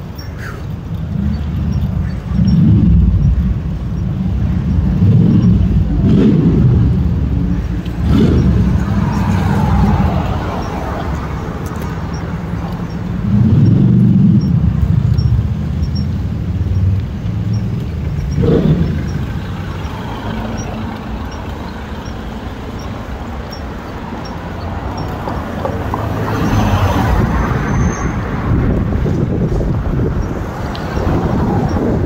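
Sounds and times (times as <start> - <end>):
road noise: 0.0 - 32.0
vehicle rumbling past: 0.9 - 32.0.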